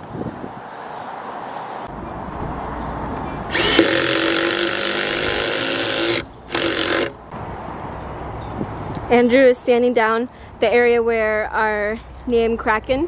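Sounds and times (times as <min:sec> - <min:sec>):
cordless drill into plywood: 0:03.5 - 0:07.2.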